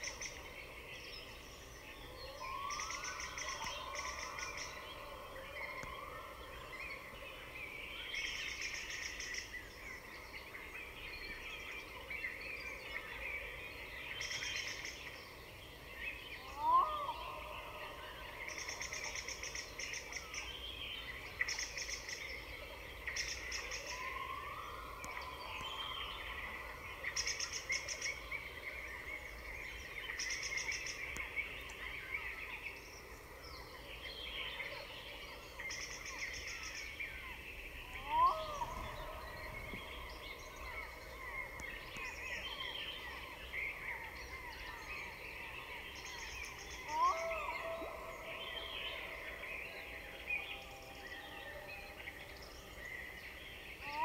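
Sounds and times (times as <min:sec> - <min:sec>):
birds chirping and calling: 0:34.4 - 0:54.0.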